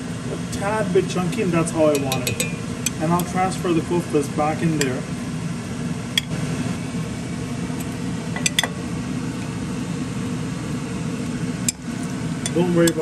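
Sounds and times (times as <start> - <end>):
low mechanical hum: 0.0 - 13.0
utensil clinking on a pan: 1.9 - 3.4.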